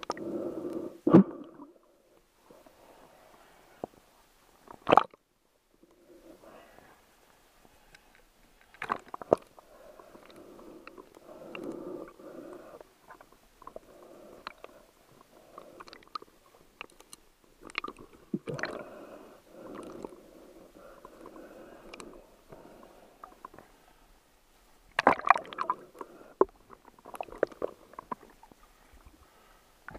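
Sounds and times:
muffled underwater burbling: 0:17.7 - 0:18.9.

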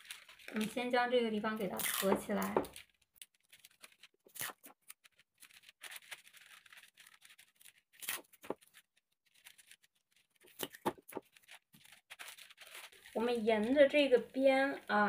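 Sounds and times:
paper rustling and scraping: 0:02.3 - 0:13.7.

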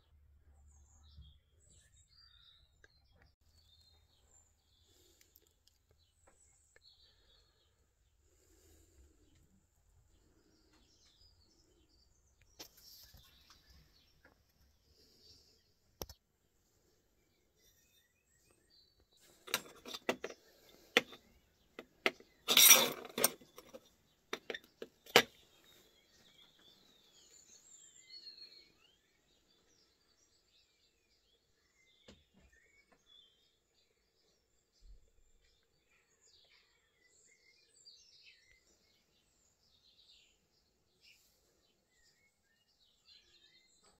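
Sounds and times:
faint bird chirps: 0:16.8 - 0:22.7, 0:24.5 - 0:44.0
hard objects clinking on concrete: 0:21.8 - 0:23.8.

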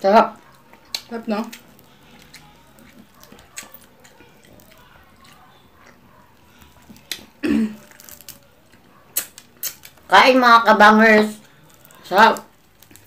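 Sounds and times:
chewing: 0:00.2 - 0:10.1, 0:11.2 - 0:13.0
eating clicks and smacks: 0:00.3 - 0:10.1.

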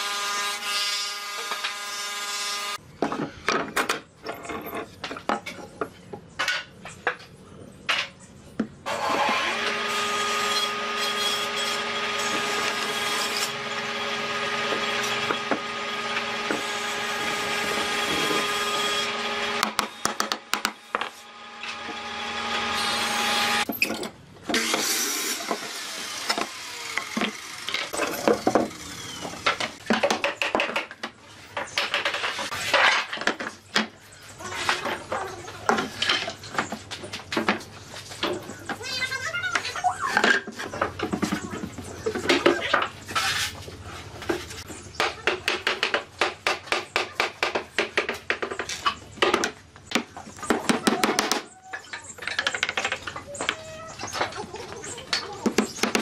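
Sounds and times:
power tool cutting wood: 0:08.9 - 0:20.1, 0:21.1 - 0:23.7, 0:24.6 - 0:29.8
wooden pieces knocked: 0:45.0 - 0:54.4.

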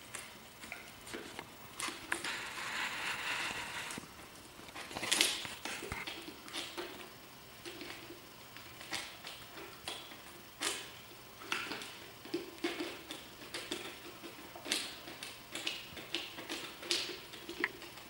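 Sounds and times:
puppy gnawing plastic jar: 0:04.6 - 0:18.0.

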